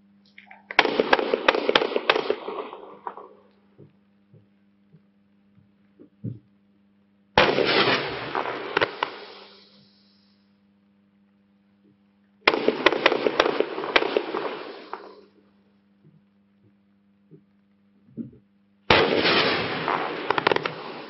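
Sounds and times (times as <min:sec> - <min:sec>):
firework crackling with sharp pops: 0:00.2 - 0:03.9, 0:07.4 - 0:10.5, 0:12.4 - 0:15.7, 0:18.9 - 0:21.0.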